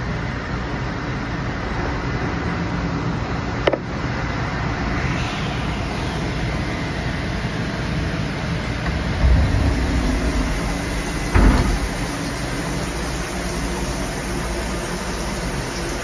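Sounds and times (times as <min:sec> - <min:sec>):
coolant spraying and hissing: 0:00.8 - 0:16.0
grinding machine running: 0:04.9 - 0:16.0
sharp clunk: 0:08.8 - 0:12.6.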